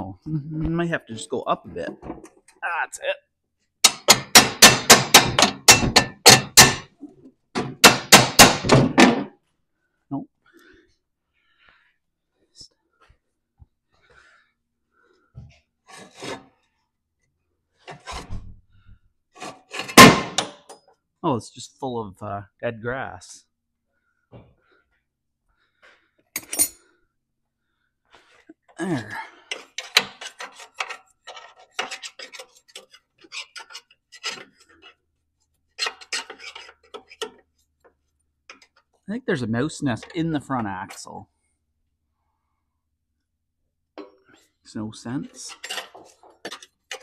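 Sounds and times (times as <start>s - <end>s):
metal pin scraping in hole: 29.5s - 35.0s, 35.8s - 37.4s, 45.4s - 47.0s.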